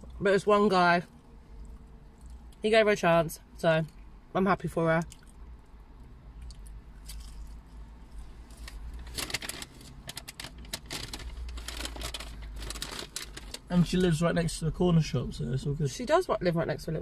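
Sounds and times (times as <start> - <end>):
low steady rumble: 0.0 - 17.0
chewing and mouth clicks: 1.1 - 2.6, 5.0 - 7.7.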